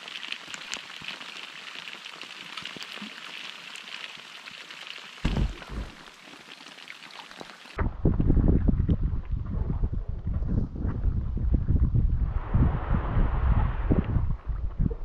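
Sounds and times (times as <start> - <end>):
water hissing: 5.2 - 7.8
short low rumble: 7.8 - 15.0.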